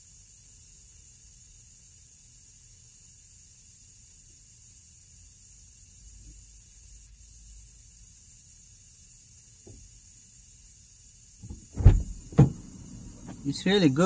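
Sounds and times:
aerosol fogger hissing: 0.0 - 14.0
heavy thumps: 11.4 - 13.4.

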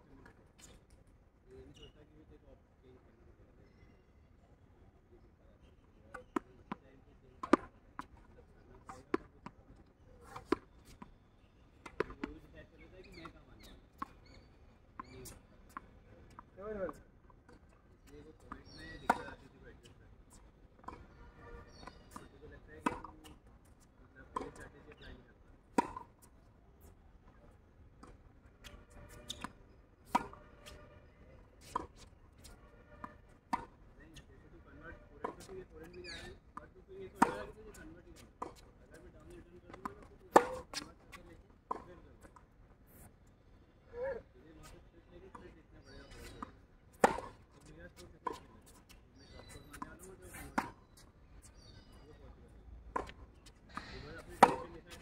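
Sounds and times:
tennis balls hit and bouncing: 7.4 - 11.1, 11.8 - 14.3, 15.0 - 27.4, 28.0 - 43.1, 45.3 - 52.0, 52.8 - 55.0
tennis ball struck and bouncing: 22.8 - 23.3, 28.0 - 30.8, 37.1 - 37.5, 39.7 - 40.9, 46.2 - 47.4, 52.9 - 54.8.

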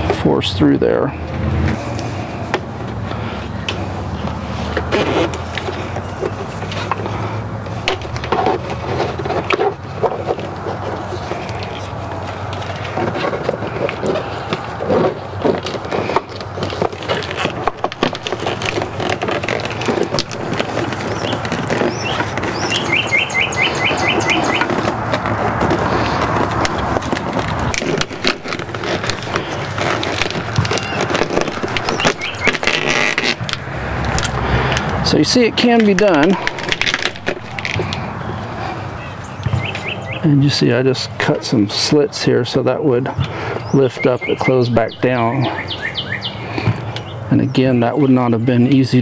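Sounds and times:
plastic rustling and scraping: 0.0 - 48.3
bird trilling: 20.4 - 24.8, 30.4 - 33.3, 38.2 - 40.3, 43.6 - 48.8.

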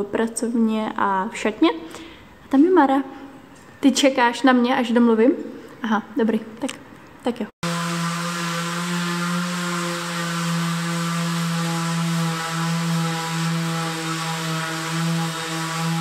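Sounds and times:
orbital sander on wood: 7.6 - 16.0.

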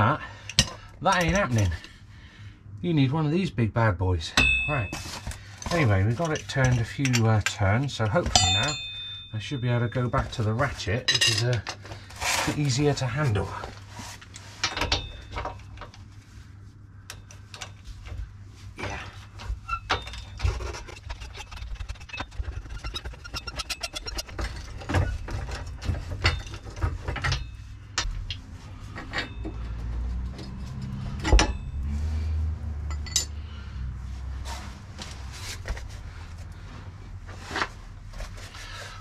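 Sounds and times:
steady low hum: 0.0 - 39.0
metal clinks: 8.3 - 11.5, 29.0 - 31.9, 32.9 - 33.5.

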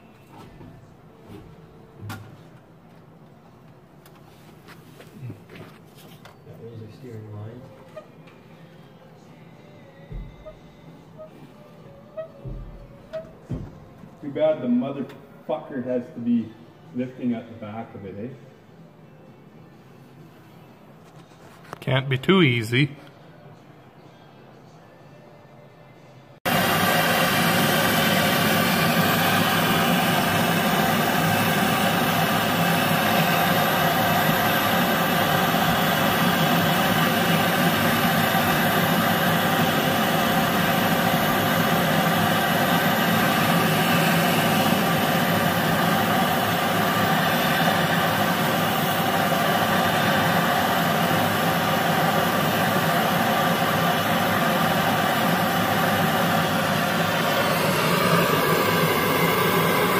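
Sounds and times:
machine droning steadily: 26.2 - 59.9.

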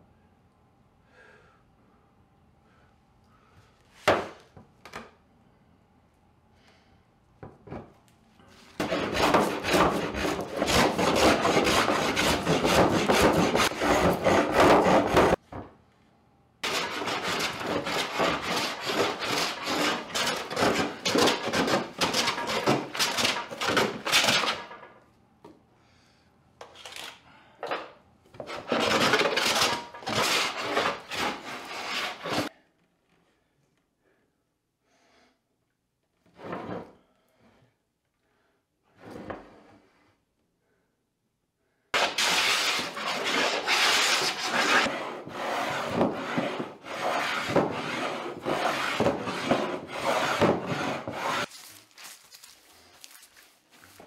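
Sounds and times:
hand plane rasping over wood: 8.8 - 15.4, 16.6 - 24.4, 28.4 - 32.5, 42.0 - 51.5.

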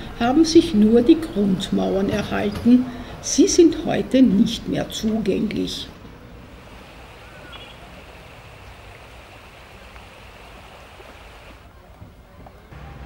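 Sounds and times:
flowing water rushing: 6.4 - 11.6
faint chirp: 7.2 - 8.0.

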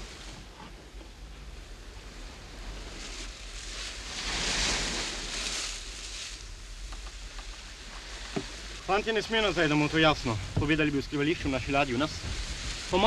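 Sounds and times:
sea water washing against boat: 0.0 - 13.0.

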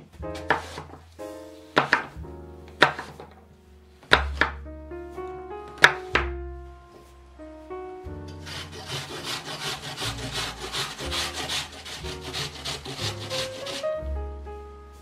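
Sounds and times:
soft background music: 0.0 - 15.0
apple grating on metal grater: 8.4 - 13.9.

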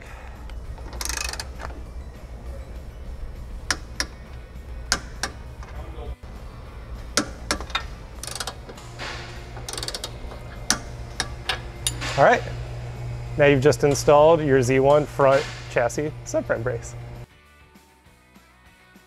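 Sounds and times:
low background music: 0.0 - 19.0
torque wrench ratcheting and clicking: 0.5 - 1.7, 7.2 - 12.0.

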